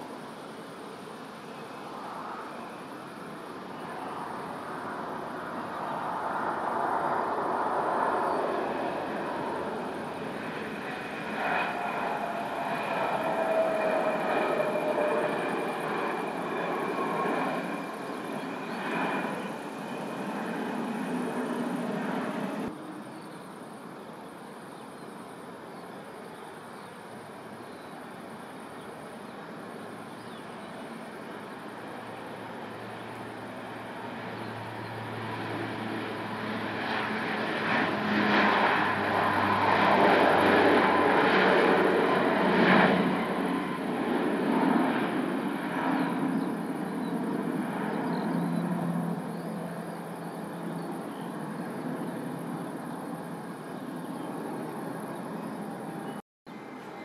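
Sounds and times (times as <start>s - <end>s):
jet engines roaring: 0.2s - 23.0s, 30.9s - 56.2s
high engine whine: 3.2s - 23.0s.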